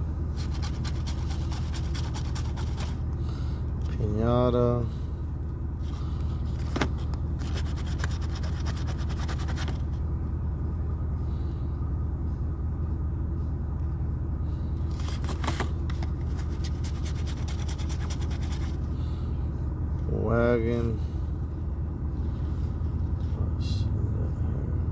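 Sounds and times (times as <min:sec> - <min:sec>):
steady low rumble: 0:00.0 - 0:24.9
coin scratching lottery ticket: 0:00.4 - 0:03.0, 0:07.4 - 0:09.8, 0:16.3 - 0:18.8.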